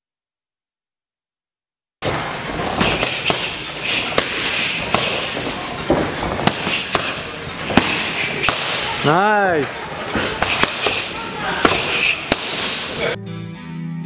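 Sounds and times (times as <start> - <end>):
boxing gloves smacking focus mitts: 2.0 - 9.1, 10.0 - 13.0
steady room hiss: 2.0 - 13.2.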